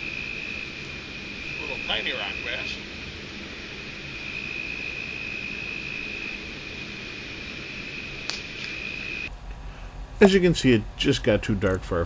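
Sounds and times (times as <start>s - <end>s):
high-pitched whine: 0.0s - 9.3s.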